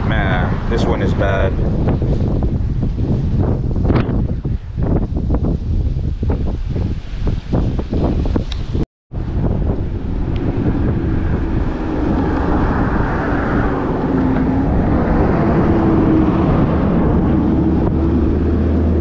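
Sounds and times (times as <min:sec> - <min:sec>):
road traffic passing: 0:00.0 - 0:04.5, 0:09.2 - 0:19.0
wavering engine hum: 0:00.0 - 0:05.6, 0:09.1 - 0:19.0.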